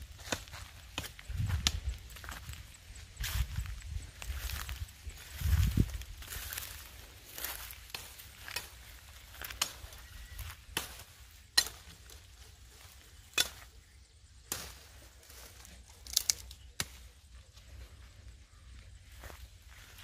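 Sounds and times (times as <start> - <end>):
wooden stick whacking branches: 7.4 - 12.2, 13.2 - 13.8, 14.4 - 15.2.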